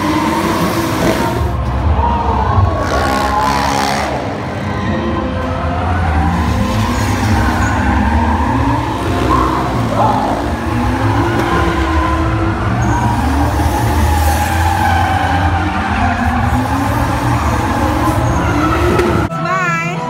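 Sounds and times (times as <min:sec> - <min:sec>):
car engines revving: 0:00.0 - 0:19.4
tyres skidding and squealing: 0:00.0 - 0:19.4
motorcycle engines: 0:00.0 - 0:20.0
music: 0:17.8 - 0:20.0.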